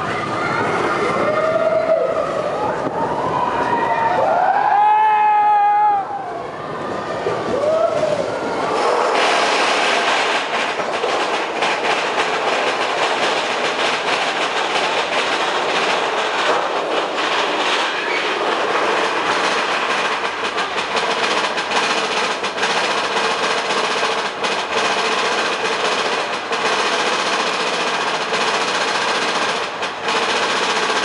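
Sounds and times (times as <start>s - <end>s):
roller coaster cars rushing: 0.0s - 31.0s
wheels clattering on track: 7.2s - 31.0s.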